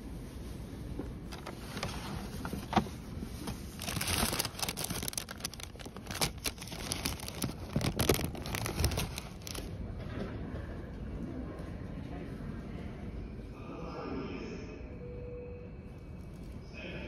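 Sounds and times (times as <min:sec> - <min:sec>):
crinkling and rustling handling: 0:00.0 - 0:10.4.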